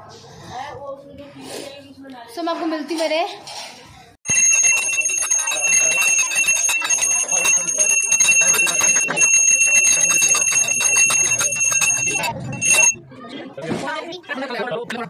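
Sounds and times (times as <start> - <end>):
brass hand bell ringing: 4.3 - 13.0.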